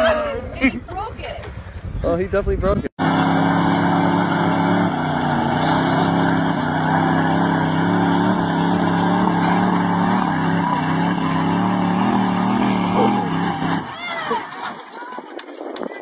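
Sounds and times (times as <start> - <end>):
truck engine revving under throttle: 3.0 - 14.4
truck tipping over: 3.0 - 16.0.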